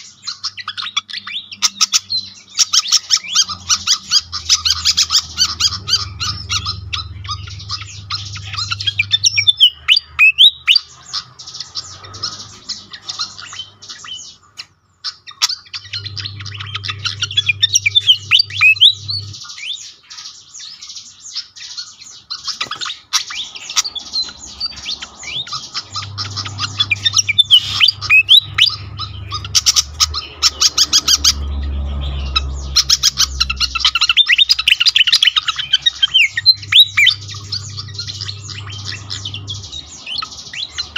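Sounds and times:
bird chirping and whistling: 0.0 - 40.9
low hum: 2.3 - 13.9, 15.7 - 19.7, 23.2 - 40.9.

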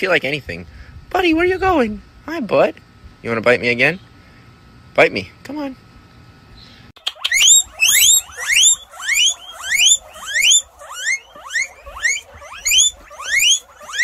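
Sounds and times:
guinea pig wheeking: 7.0 - 14.0.

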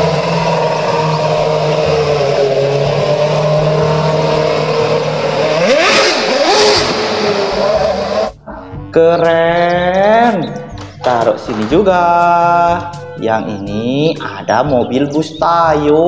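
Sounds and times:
race car engine revving: 0.0 - 8.4.

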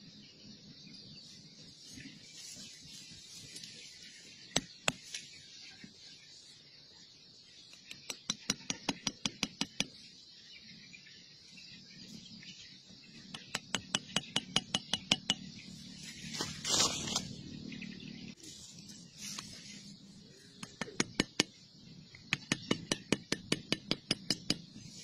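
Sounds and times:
scraping rustle: 16.0 - 17.4.

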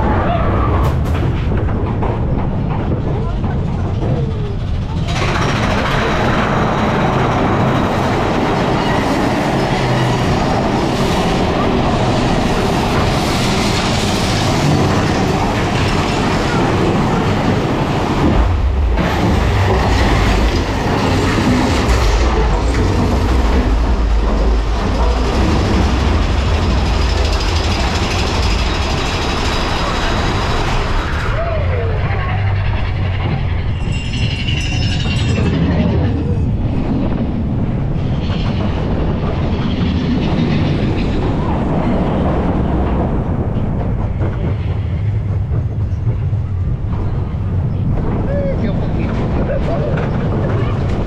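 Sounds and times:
roller coaster rumbling on track: 0.0 - 51.0.

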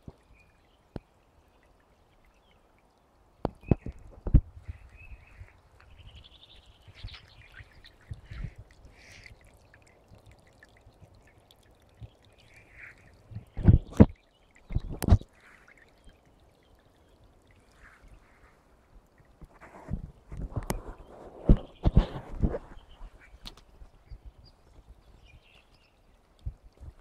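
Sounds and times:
brook trickling over stones: 0.0 - 27.0.

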